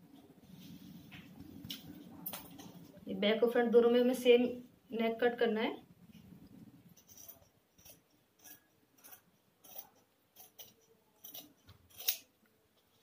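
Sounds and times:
scissors snipping cloth: 7.1s - 12.3s.

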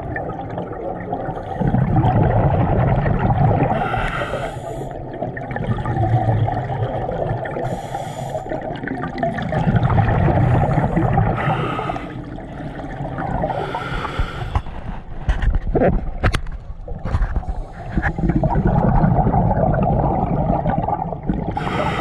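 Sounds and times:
bubbling exhale underwater: 0.0s - 14.5s, 17.2s - 22.0s
regulator inhale hiss: 3.8s - 5.0s, 7.6s - 8.6s, 10.6s - 12.2s, 13.6s - 14.7s, 21.6s - 22.0s.

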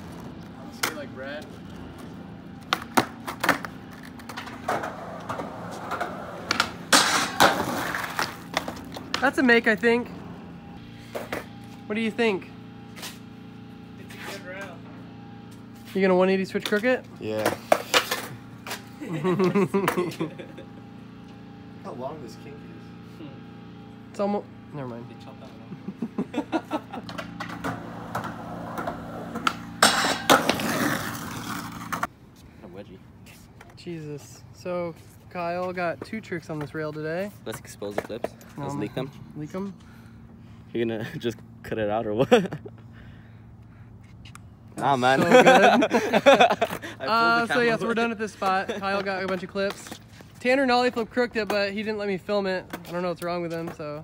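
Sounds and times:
skateboard wheels rolling on asphalt: 0.0s - 11.8s, 26.5s - 32.2s
skateboard clacks: 2.6s - 9.3s, 48.4s - 50.0s
skateboard grinding metal handrail: 2.7s - 9.1s, 27.1s - 32.1s.

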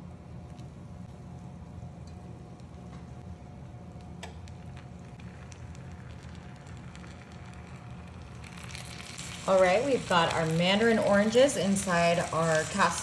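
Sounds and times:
steady low hum: 0.0s - 13.0s
small crackles: 2.0s - 13.0s
sugar and butter sizzling in skillet: 5.2s - 13.0s.

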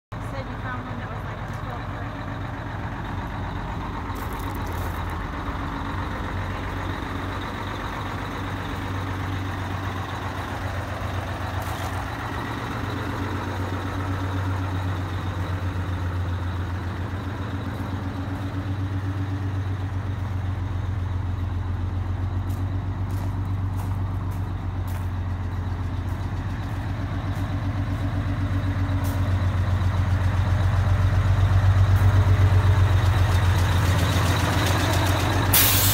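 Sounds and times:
diesel engine idling: 0.1s - 35.9s.

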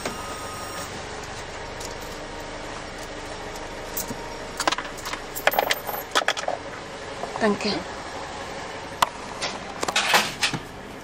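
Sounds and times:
car engine idling: 0.0s - 7.2s.

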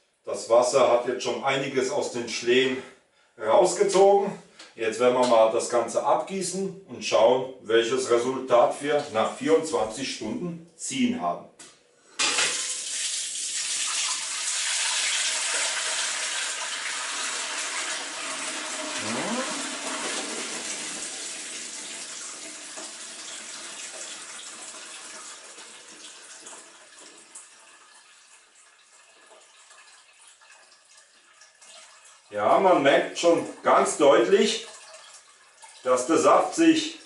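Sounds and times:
liquid pouring through sieve: 12.3s - 32.3s, 34.4s - 37.0s.

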